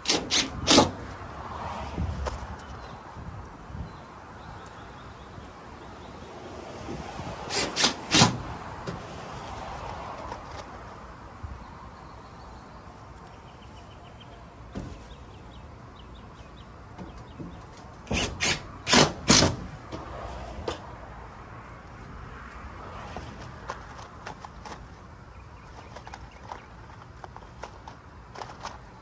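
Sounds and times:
cordless drill driving screws: 0:00.0 - 0:01.0, 0:07.5 - 0:08.5, 0:18.1 - 0:19.7.

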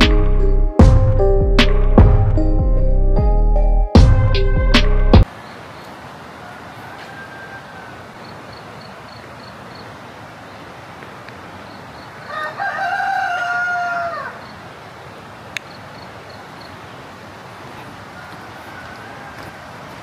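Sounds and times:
steady background hiss: 0:05.3 - 0:12.6
rooster crowing: 0:06.2 - 0:08.4, 0:12.2 - 0:14.6, 0:18.0 - 0:20.0.

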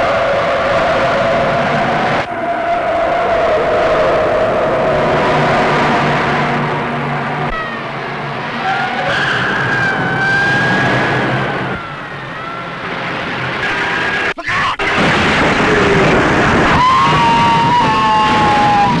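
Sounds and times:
car engine running: 0:04.6 - 0:17.2
tyres squealing: 0:07.3 - 0:19.0.

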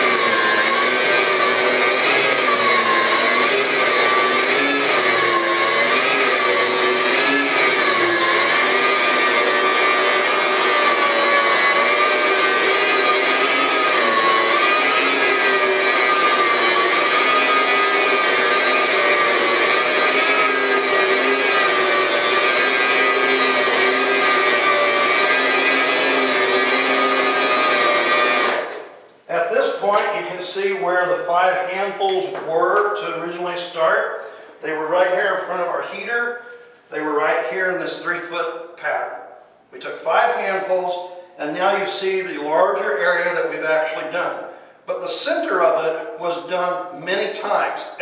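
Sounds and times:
carpet cleaning machine whine: 0:00.0 - 0:29.0.

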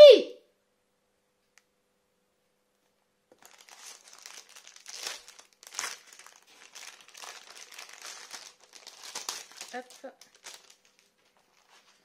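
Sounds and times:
plastic sleeve crinkling: 0:03.3 - 0:12.0.

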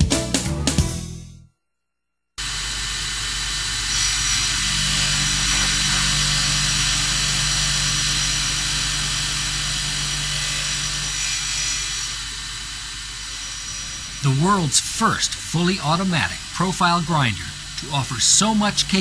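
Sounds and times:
grinder machine hiss: 0:02.4 - 0:19.0
low machine hum: 0:02.4 - 0:19.0.

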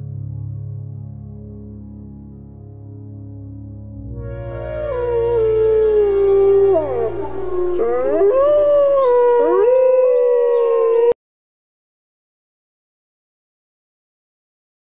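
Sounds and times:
wolves howling: 0:04.6 - 0:11.2.

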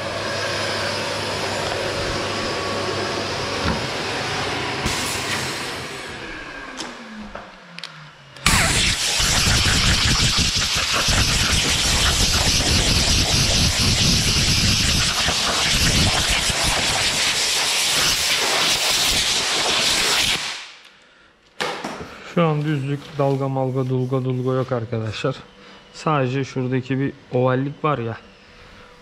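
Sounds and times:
orbital sander spinning down: 0:00.0 - 0:20.4
compressed air hiss: 0:08.4 - 0:20.8.

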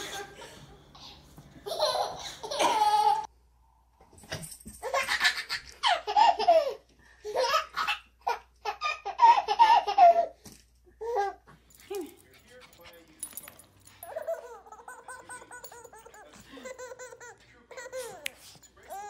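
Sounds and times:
babies giggling: 0:00.0 - 0:03.3, 0:13.9 - 0:19.0.

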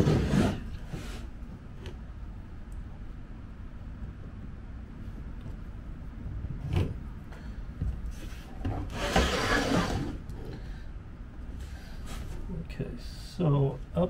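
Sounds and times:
plywood scraping over plywood: 0:00.0 - 0:01.3, 0:08.1 - 0:10.6.

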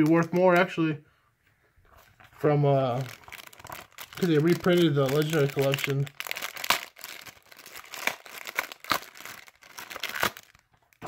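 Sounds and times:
foil packs crinkling: 0:02.7 - 0:11.0.

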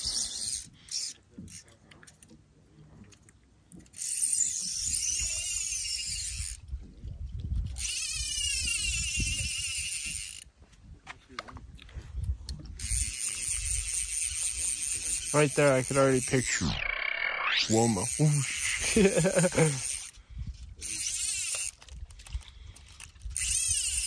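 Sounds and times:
fishing reel ratchet buzzing: 0:00.0 - 0:01.6, 0:03.8 - 0:06.7, 0:07.7 - 0:10.5, 0:12.8 - 0:20.2, 0:20.8 - 0:24.0.

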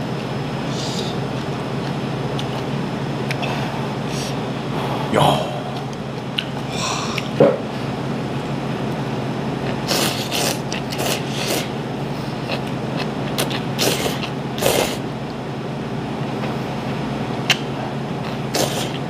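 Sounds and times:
steady low hum: 0:00.0 - 0:19.0
person slurping noodles: 0:09.7 - 0:11.8, 0:13.4 - 0:15.0, 0:18.3 - 0:19.0.

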